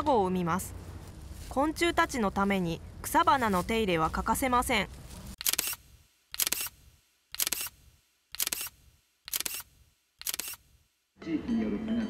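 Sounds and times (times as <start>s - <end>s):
camera shutter clicks: 5.4s - 7.8s, 8.4s - 10.7s.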